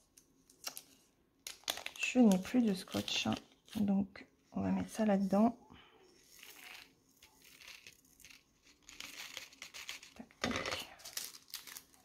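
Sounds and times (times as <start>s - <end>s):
plastic bag crinkling: 6.2s - 12.0s.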